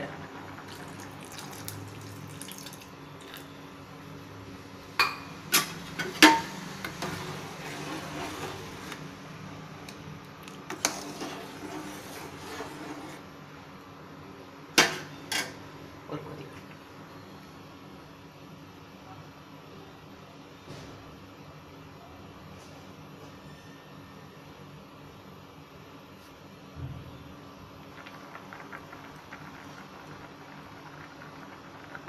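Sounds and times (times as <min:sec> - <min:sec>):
metal ladle scraping metal pot: 0:05.6 - 0:09.0, 0:10.7 - 0:13.2.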